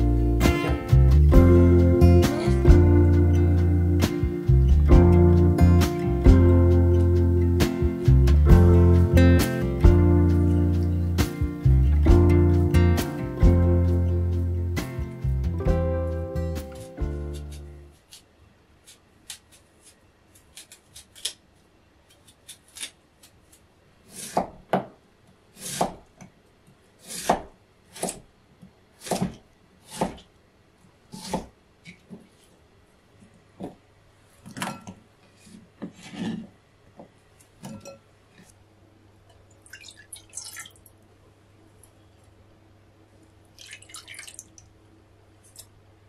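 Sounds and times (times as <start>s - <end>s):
knife chopping on cutting board: 24.1s - 24.9s, 25.6s - 26.0s, 27.0s - 28.2s, 29.0s - 30.3s, 31.1s - 31.5s.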